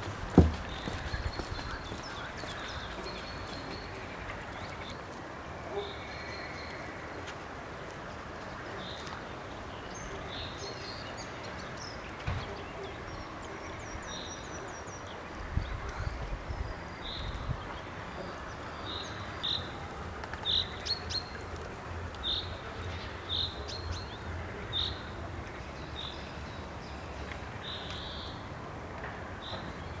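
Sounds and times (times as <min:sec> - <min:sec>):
songbirds chirping: 0:00.0 - 0:30.0
low thumps: 0:00.3 - 0:01.0.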